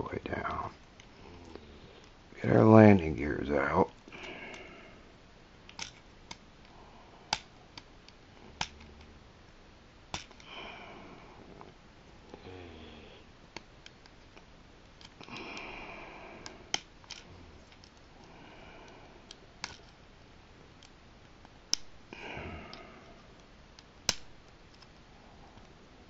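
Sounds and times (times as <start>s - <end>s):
small sharp plastic clicks: 5.7s - 9.0s, 21.7s - 21.9s, 22.7s - 25.0s
person breathing through the nose: 15.3s - 16.7s, 22.1s - 23.2s.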